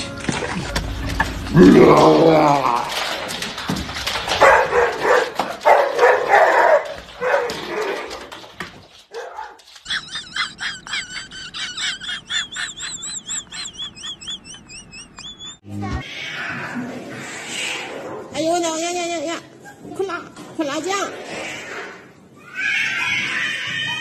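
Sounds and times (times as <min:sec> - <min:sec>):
dog barking: 0:04.4 - 0:08.0, 0:09.1 - 0:09.6
high wavering chirps: 0:12.6 - 0:15.6.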